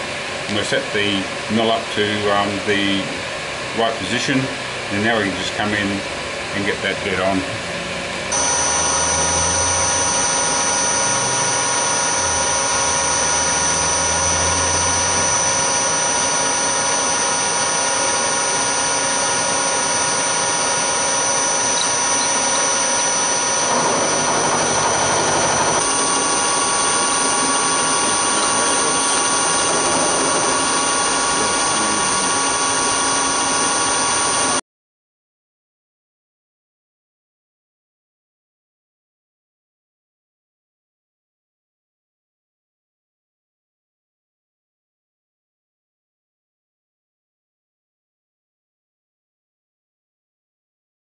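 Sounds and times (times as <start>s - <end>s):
milling machine whining: 0.0s - 34.6s.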